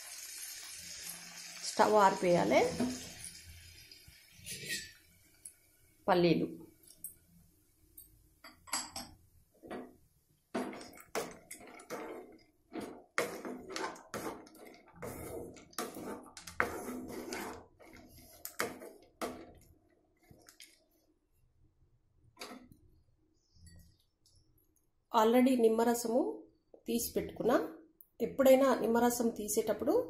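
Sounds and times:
spatula scraping metal pan: 0:04.4 - 0:05.0, 0:10.6 - 0:19.6.

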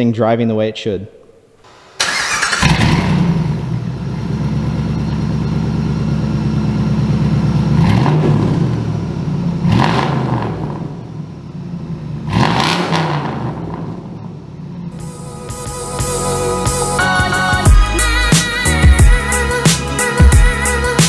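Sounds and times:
car engine running and revving: 0:02.6 - 0:15.0.

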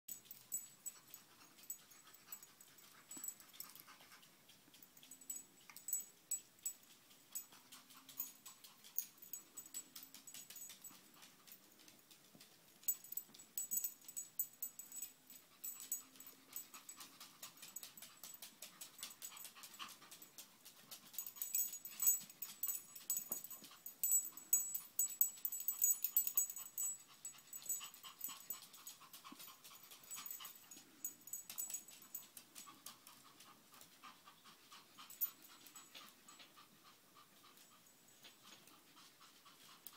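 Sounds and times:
dog breathing hard: 0:00.6 - 0:04.3, 0:14.1 - 0:39.9.

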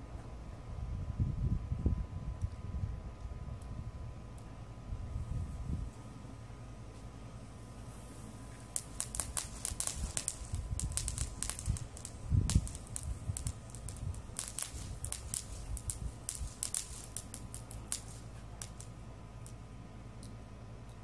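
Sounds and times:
sparkler firework crackling: 0:08.0 - 0:19.6.

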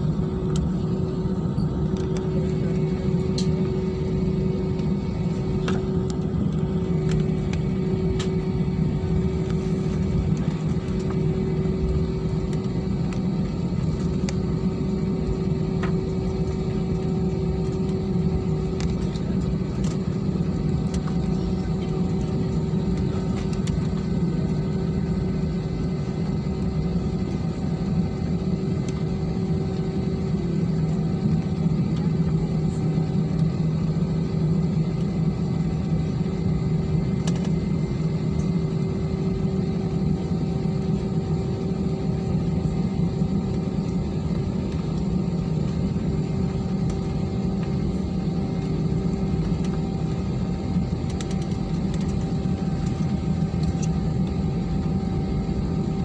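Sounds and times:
jet engines rumbling in cabin: 0:00.0 - 0:56.0.

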